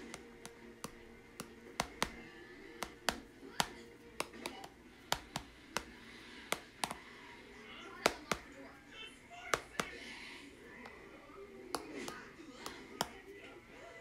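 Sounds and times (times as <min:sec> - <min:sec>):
stylus tapping on glass screen: 0:00.0 - 0:07.1, 0:08.0 - 0:08.5, 0:09.6 - 0:10.0.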